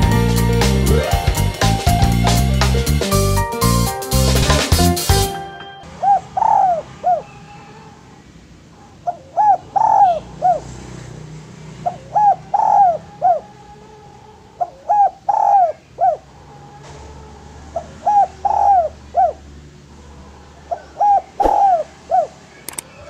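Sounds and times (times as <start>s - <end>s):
dove cooing: 5.9s - 10.8s, 11.8s - 23.0s.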